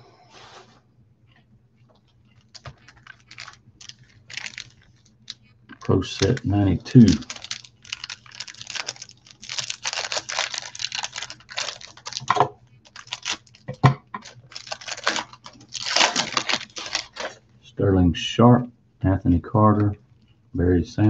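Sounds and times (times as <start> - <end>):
foil wrapper crinkling and tearing: 2.0 - 17.4
foil wrapper ripping: 2.4 - 17.4.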